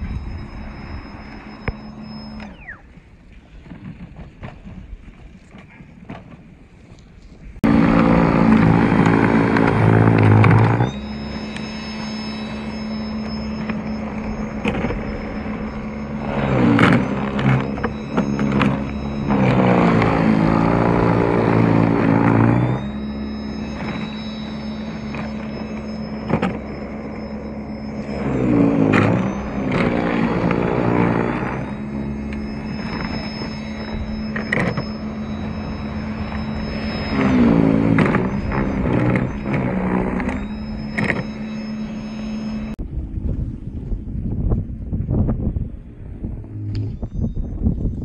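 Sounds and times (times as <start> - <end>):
snow blower motor humming: 0.0 - 2.8, 7.6 - 42.8.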